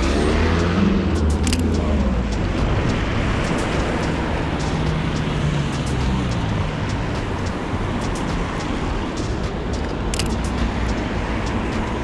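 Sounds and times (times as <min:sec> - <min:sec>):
low engine hum: 0:00.0 - 0:12.0.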